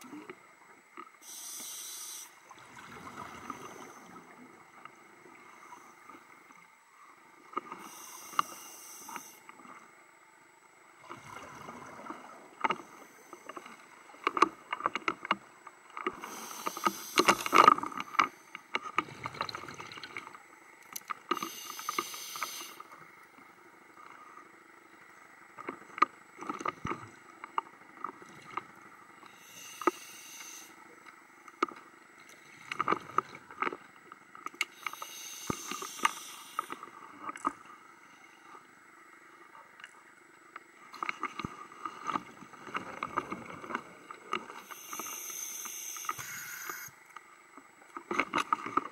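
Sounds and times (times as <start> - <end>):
diver breathing through regulator: 16.2 - 18.1, 21.3 - 22.9, 29.3 - 30.8, 34.7 - 36.8, 44.6 - 46.9.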